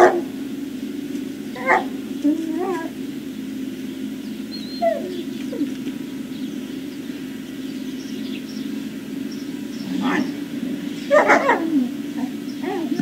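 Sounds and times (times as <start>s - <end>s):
steady low hum: 0.0s - 13.0s
dog whining: 1.5s - 3.0s, 4.5s - 5.9s, 9.8s - 10.4s, 11.1s - 13.0s.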